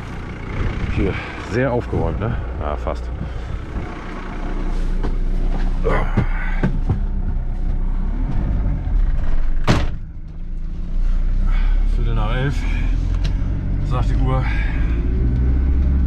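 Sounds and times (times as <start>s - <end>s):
truck engine running: 0.0s - 16.0s
door clunks: 9.5s - 10.1s.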